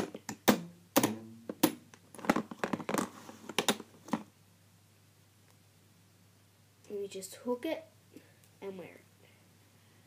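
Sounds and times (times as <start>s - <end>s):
rubber bands clicking and rustling: 0.0s - 4.3s.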